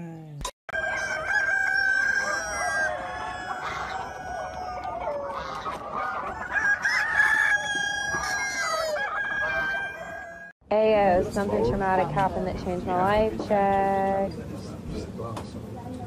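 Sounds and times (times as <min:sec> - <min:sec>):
roosters crowing: 0:00.7 - 0:10.6
hens clucking: 0:00.8 - 0:10.4.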